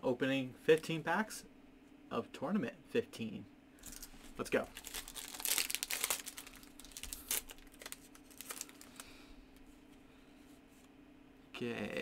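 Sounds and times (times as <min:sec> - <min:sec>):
foil wrapper tearing and crinkling: 0:04.7 - 0:09.1.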